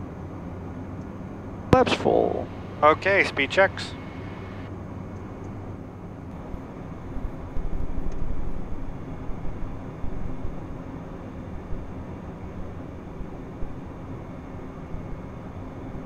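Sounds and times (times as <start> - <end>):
jet engine noise: 1.7 - 4.8.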